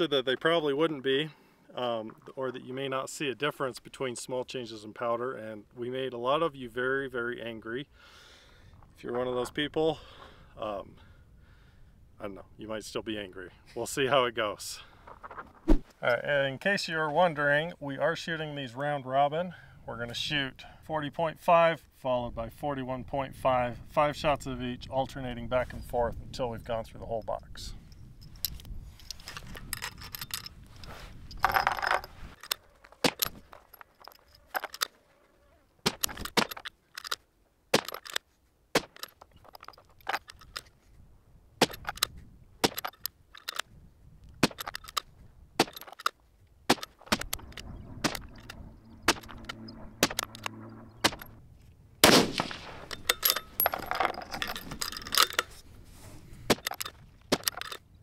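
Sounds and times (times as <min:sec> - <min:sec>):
metallic clicks of rifle bolt: 0:28.2 - 0:30.6, 0:31.3 - 0:35.0, 0:35.9 - 0:40.8, 0:41.6 - 0:51.3, 0:52.3 - 0:55.6, 0:56.5 - 0:58.0
rifle shots: 0:46.7 - 0:51.4, 0:52.0 - 0:53.1.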